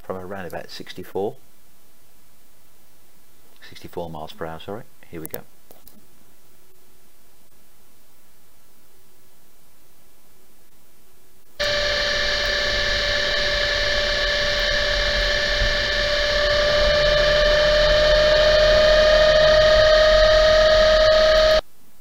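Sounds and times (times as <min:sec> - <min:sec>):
differential gear whine: 0:11.6 - 0:21.6
noisy drivetrain sound: 0:11.6 - 0:21.6.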